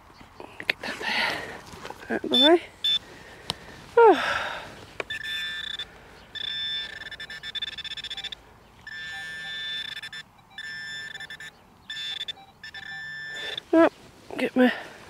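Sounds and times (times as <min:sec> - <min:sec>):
metal detector pinpointer buzzing: 0:02.3 - 0:03.0, 0:05.0 - 0:13.6.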